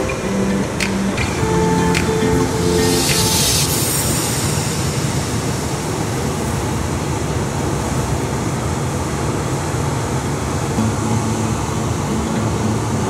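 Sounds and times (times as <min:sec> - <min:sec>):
breaking surf: 0:00.0 - 0:13.0
strong wind: 0:00.0 - 0:13.0.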